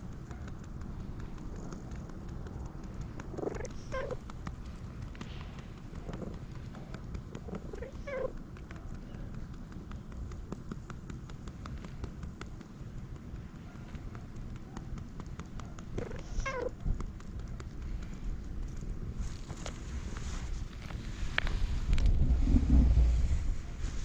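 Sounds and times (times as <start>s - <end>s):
taps of patting: 0.0s - 23.3s
cat cooing calls: 16.0s - 16.8s.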